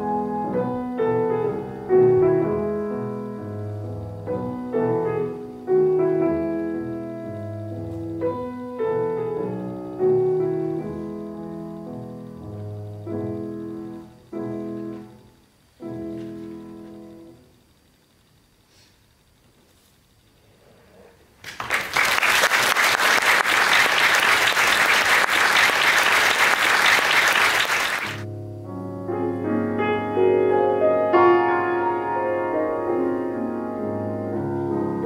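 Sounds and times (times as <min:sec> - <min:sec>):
piano playing slow chords: 0:00.0 - 0:17.6, 0:27.8 - 0:35.0.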